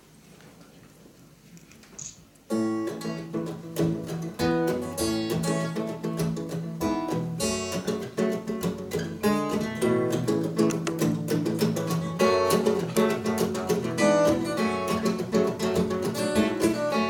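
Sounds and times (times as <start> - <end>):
acoustic guitars strumming: 2.5 - 17.0.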